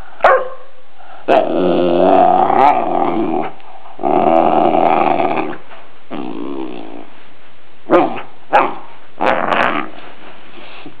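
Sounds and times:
puppy barking: 0:00.2 - 0:00.7, 0:07.9 - 0:08.8
puppy groaning: 0:01.3 - 0:07.1.

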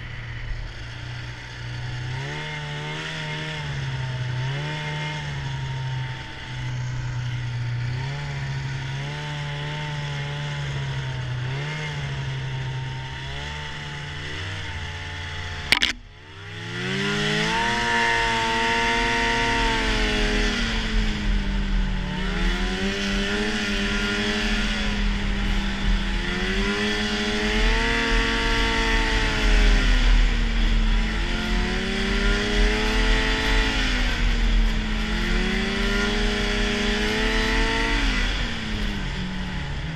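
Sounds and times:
snowmobile engine revving: 0:00.0 - 0:39.9
snowmobile track noise: 0:00.0 - 0:39.9
wind: 0:00.0 - 0:39.9
sharp knock: 0:15.7 - 0:16.1.

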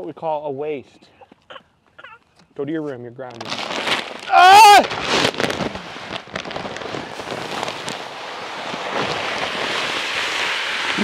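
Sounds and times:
bag crackling: 0:03.3 - 0:11.0
pellets pouring into metal hopper: 0:07.2 - 0:11.0.

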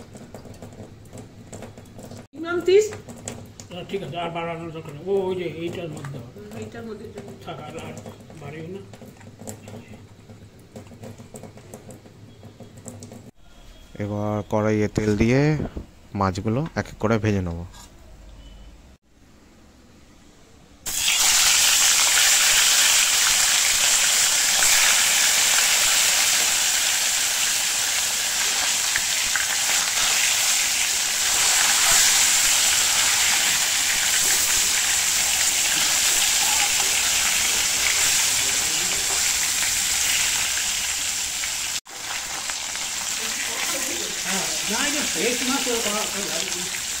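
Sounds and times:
fish frying in hot oil: 0:20.9 - 0:47.0.

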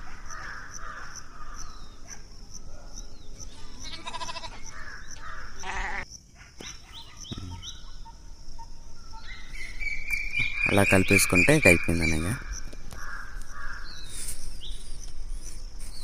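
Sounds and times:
animal bleating: 0:03.7 - 0:04.7, 0:05.6 - 0:06.0.

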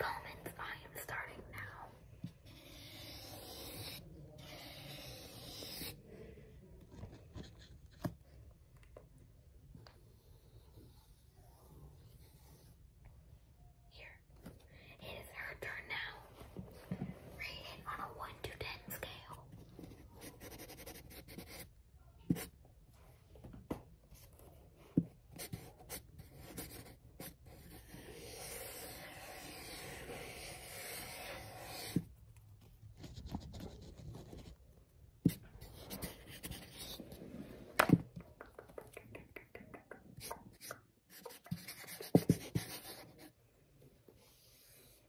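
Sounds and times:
marker pen scratching: 0:00.1 - 0:06.1, 0:06.8 - 0:08.3, 0:09.9 - 0:12.8, 0:17.5 - 0:21.7, 0:25.0 - 0:34.6, 0:35.2 - 0:38.0, 0:40.2 - 0:43.4, 0:44.2 - 0:45.0
marker pen tapping: 0:37.8 - 0:43.0.

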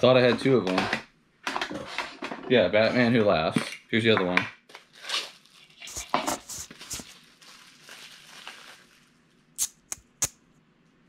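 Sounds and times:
plastic bag crinkling: 0:04.7 - 0:09.6.

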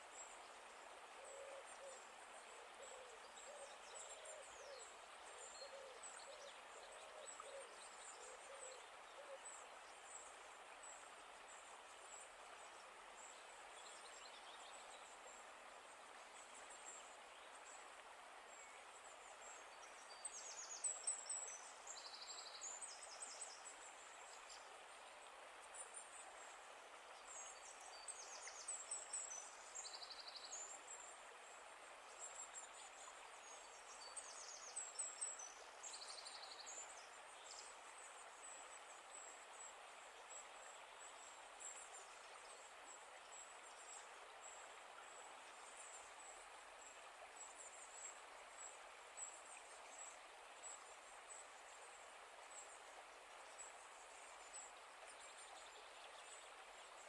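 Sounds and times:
soft steady hiss: 0:00.0 - 0:57.0.

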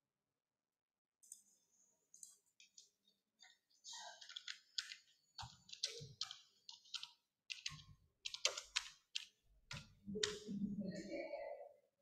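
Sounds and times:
computer keyboard typing: 0:04.1 - 0:10.6.

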